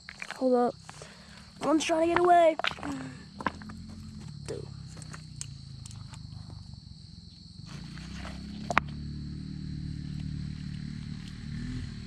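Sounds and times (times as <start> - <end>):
steady low hum: 0.7 - 12.0
stones clicking and knocking: 1.6 - 3.7.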